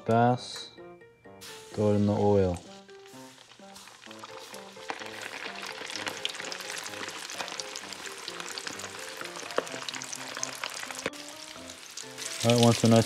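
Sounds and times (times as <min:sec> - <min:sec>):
soft background music: 0:00.0 - 0:13.0
fish deep-frying in oil: 0:01.4 - 0:13.0.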